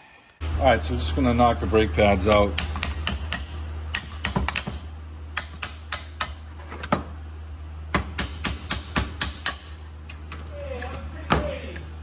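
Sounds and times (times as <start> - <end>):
hammer striking metal: 7.9 - 9.8.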